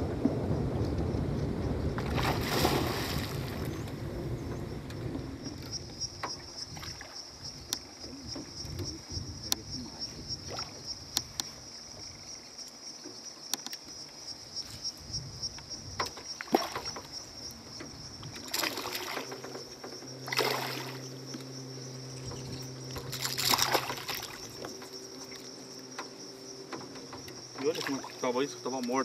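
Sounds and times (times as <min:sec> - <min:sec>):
fish splashing at water surface: 0:02.0 - 0:03.7, 0:18.4 - 0:19.6, 0:20.3 - 0:21.1, 0:23.0 - 0:24.6
steady high buzz: 0:17.0 - 0:29.0.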